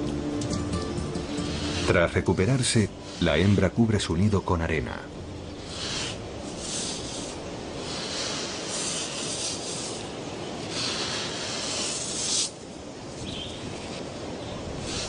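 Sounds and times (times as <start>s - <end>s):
sand scraping: 1.2s - 3.7s, 5.6s - 14.2s.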